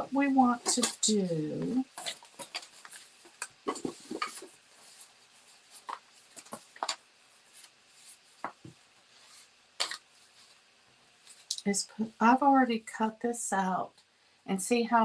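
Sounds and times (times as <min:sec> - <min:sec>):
paper rustling: 0:01.9 - 0:10.6.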